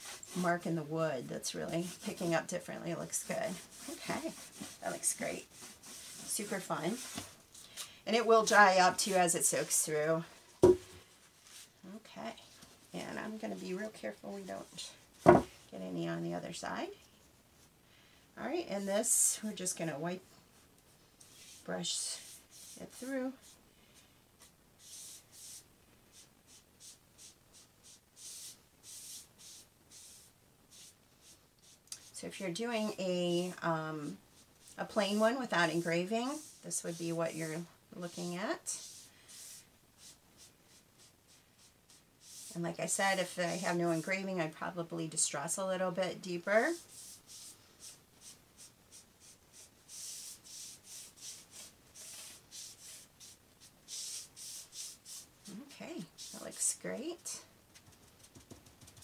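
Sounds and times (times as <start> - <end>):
foam brush swishing on wood: 0.0 - 7.4, 32.8 - 45.3.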